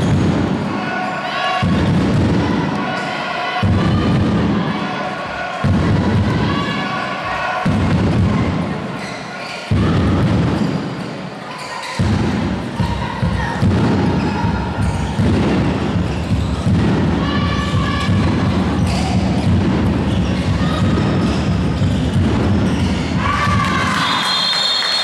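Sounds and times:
ball bouncing on hall floor: 11.8s - 23.9s.

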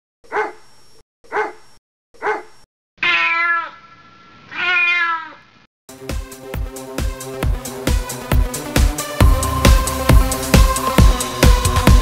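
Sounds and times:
dog barking: 0.3s - 0.6s, 1.3s - 2.6s.

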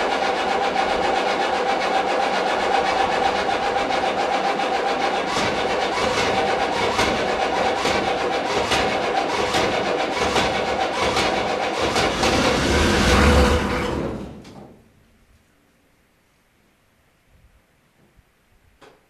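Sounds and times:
diesel engine running: 0.0s - 14.4s.

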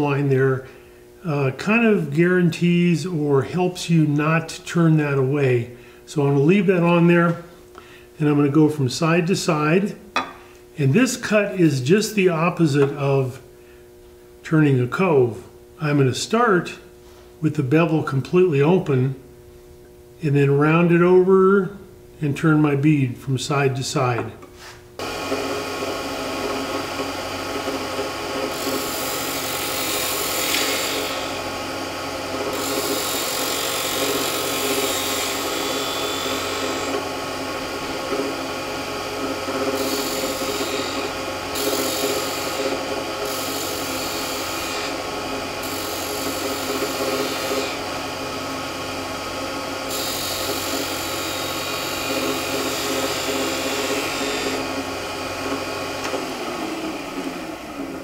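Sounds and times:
gouge cutting spinning wood: 25.0s - 58.0s
lathe motor hum: 25.0s - 58.0s.

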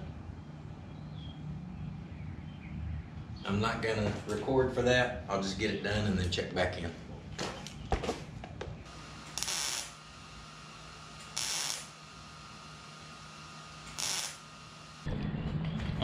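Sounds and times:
faint steady hum: 8.4s - 15.1s
welding crackling hiss: 8.9s - 15.1s.

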